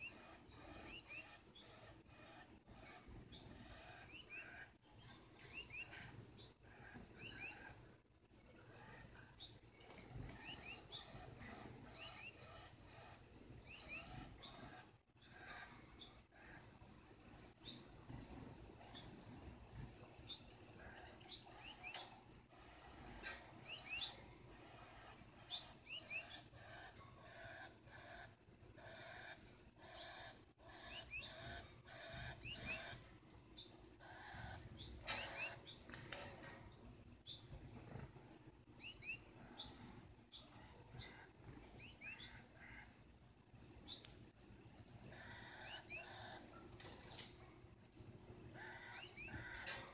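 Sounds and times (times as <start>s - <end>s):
buzzy bird chatter: 0.0s - 6.1s, 10.2s - 15.6s, 20.8s - 33.1s, 34.0s - 36.4s, 45.0s - 47.4s, 48.6s - 49.9s
finches chirping: 0.0s - 7.8s, 10.2s - 16.6s, 21.0s - 33.0s, 33.6s - 36.3s, 38.8s - 42.9s, 45.1s - 47.4s, 48.6s - 49.6s.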